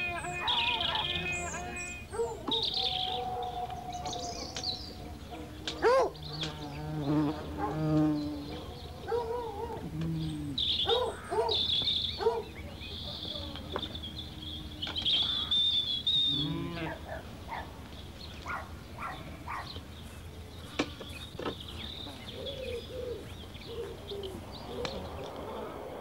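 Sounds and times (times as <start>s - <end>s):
hounds baying and yelping: 0.0s - 6.2s, 8.4s - 10.0s, 10.7s - 13.3s, 16.8s - 17.8s, 18.4s - 19.8s.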